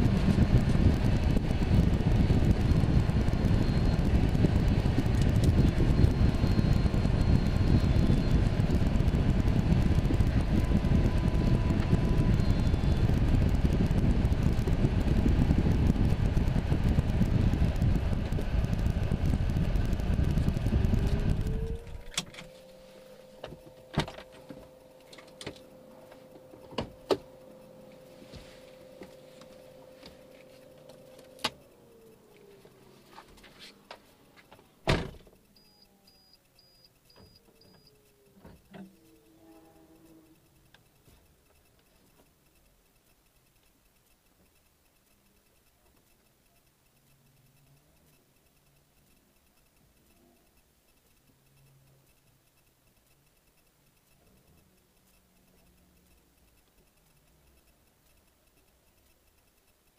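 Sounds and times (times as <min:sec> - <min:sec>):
car engine running: 0:00.0 - 0:34.6
faint steady whine: 0:00.0 - 0:59.9
scattered clicks: 0:00.0 - 0:59.9
short high beeps: 0:35.5 - 0:38.2.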